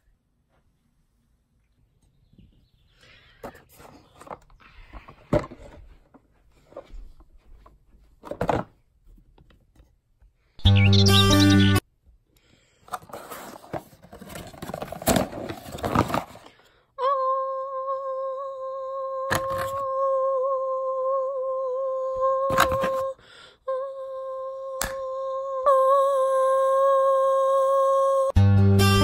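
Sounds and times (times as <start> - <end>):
cardboard box crinkling: 13.0 - 16.5
person humming high note: 17.0 - 28.3.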